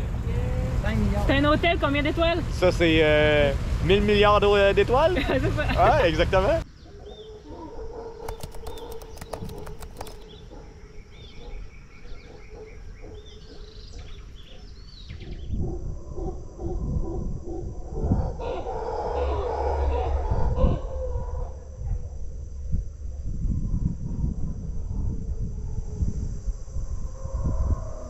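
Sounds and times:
jungle background hum: 0.0s - 28.0s
birds calling and chirping: 6.3s - 16.8s.

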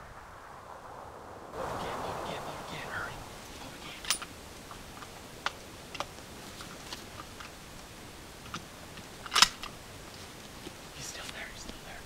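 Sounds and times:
small clicks and ticks: 4.0s - 11.9s.

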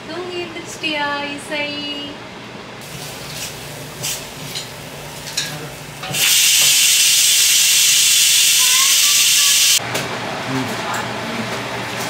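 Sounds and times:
tap water running into steel sink: 6.0s - 9.8s.

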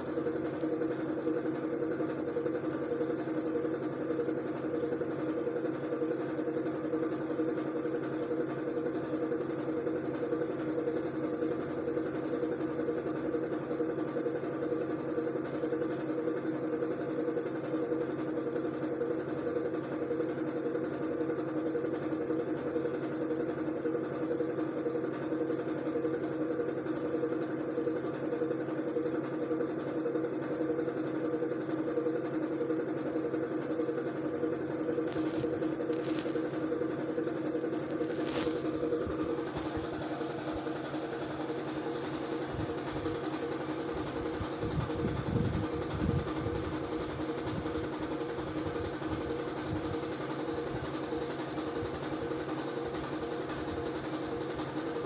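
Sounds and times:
mechanical hum: 0.0s - 21.6s, 22.4s - 55.0s.

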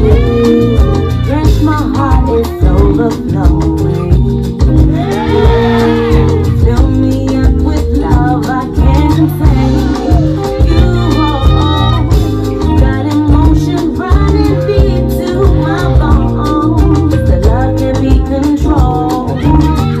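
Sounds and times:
person singing: 0.0s - 20.0s.

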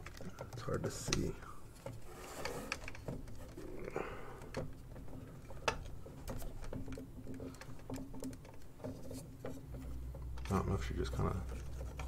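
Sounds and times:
plastic model parts clicking: 0.0s - 9.6s.

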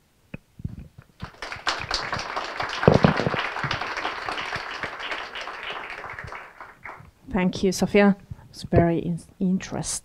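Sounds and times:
audience applauding: 1.2s - 7.1s.

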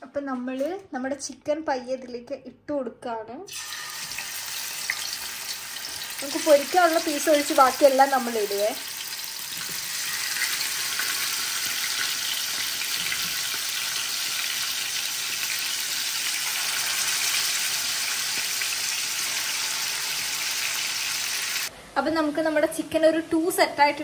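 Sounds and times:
chicken sizzling in hot oil: 3.5s - 21.7s.

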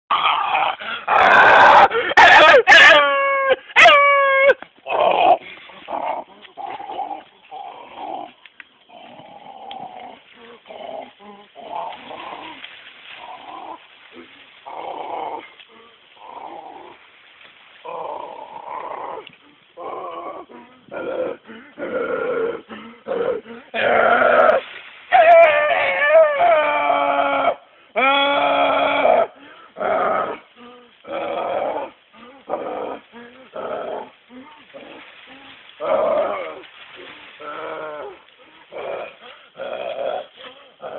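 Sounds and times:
man howling like a wolf: 0.1s - 7.3s, 17.8s - 40.9s.

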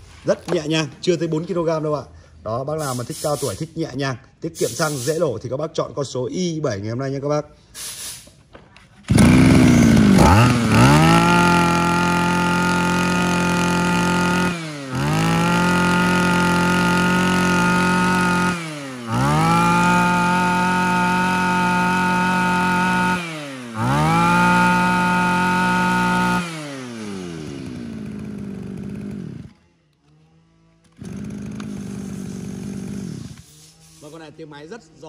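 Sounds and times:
brush cutter engine revving: 9.1s - 33.5s.

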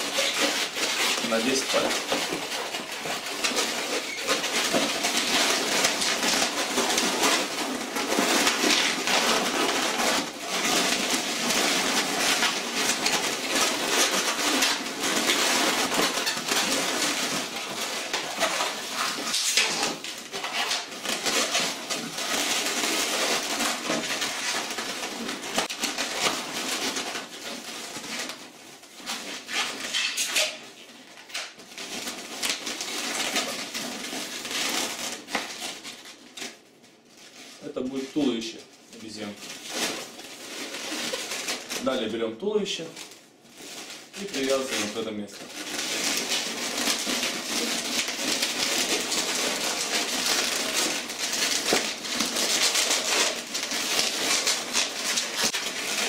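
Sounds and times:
balloons squeaking and rubbing: 0.0s - 56.0s.

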